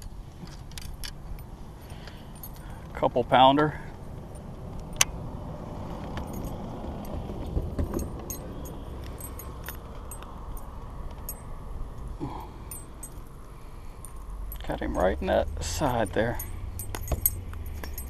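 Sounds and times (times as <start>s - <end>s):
low handling rumble: 2.4s - 18.0s
fishing lure blades jingling: 7.9s - 11.6s, 12.2s - 18.0s.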